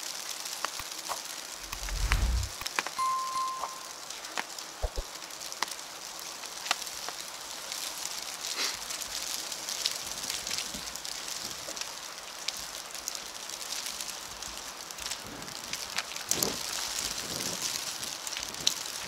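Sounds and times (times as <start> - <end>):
wet snow falling on street: 0.0 - 2.9, 4.0 - 19.0.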